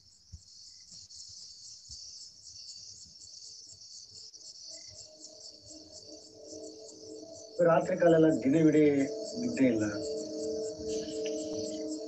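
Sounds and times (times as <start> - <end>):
crickets chirping: 0.0 - 12.0
low sustained tones: 5.0 - 12.0.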